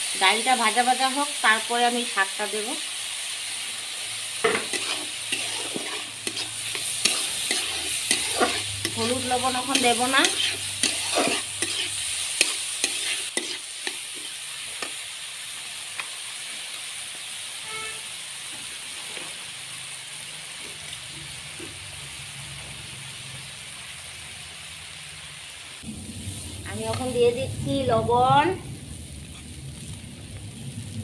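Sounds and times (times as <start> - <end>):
lentils sizzling in oil: 0.0 - 31.0
metal spatula scraping a pan: 4.4 - 14.4.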